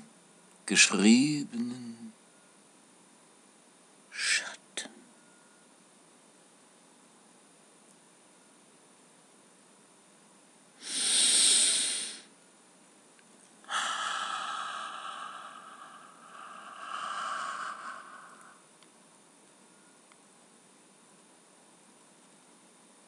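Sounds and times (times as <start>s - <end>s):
man breathing loudly: 10.8s - 12.3s, 13.7s - 18.7s.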